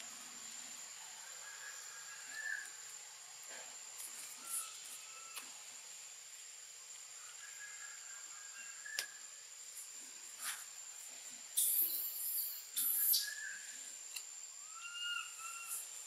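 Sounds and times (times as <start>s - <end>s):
high insect drone: 0.0s - 16.0s
baby monkey screaming: 14.6s - 15.8s.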